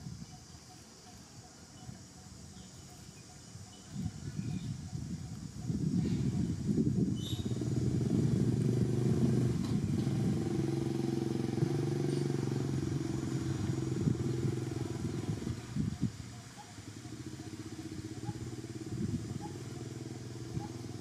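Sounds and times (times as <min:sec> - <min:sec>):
vehicle engine humming: 0:04.7 - 0:21.0.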